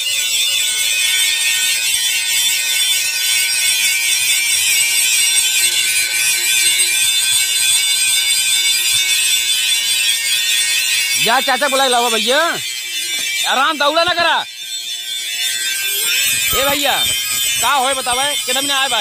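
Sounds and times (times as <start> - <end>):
angle grinder on steel: 9.1 - 19.0.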